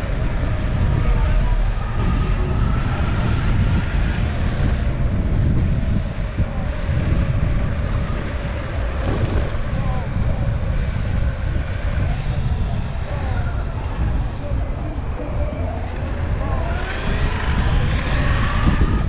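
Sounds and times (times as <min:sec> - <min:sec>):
electric skateboard rolling on pavement: 0:00.0 - 0:19.0
wind buffeting microphone: 0:00.0 - 0:19.0.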